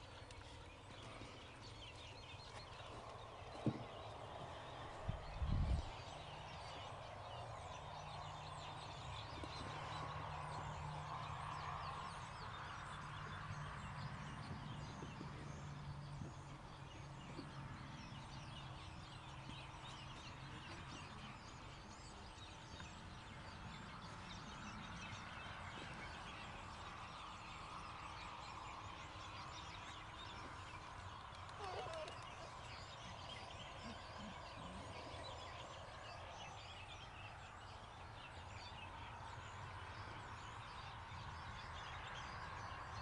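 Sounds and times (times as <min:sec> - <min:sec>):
birds chirping: 0:00.0 - 0:43.0.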